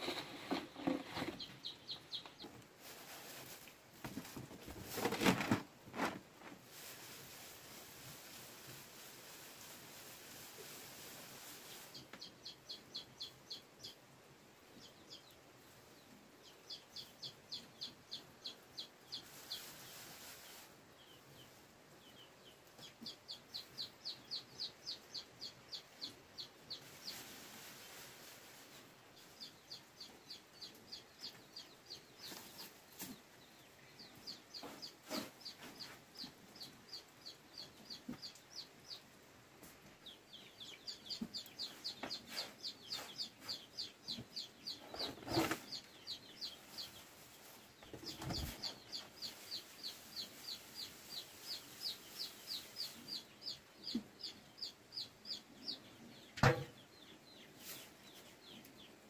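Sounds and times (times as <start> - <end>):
chicks peeping: 0.0 - 59.0
knocks and thumps: 56.4 - 56.8.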